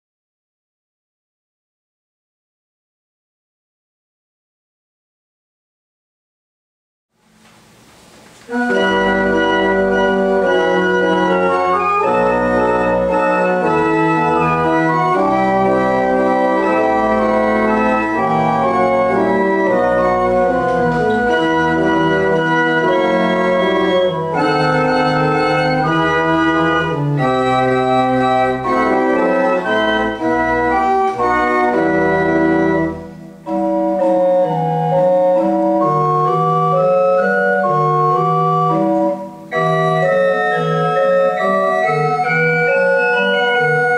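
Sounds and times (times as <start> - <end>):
pipe organ playing: 8.5 - 43.9.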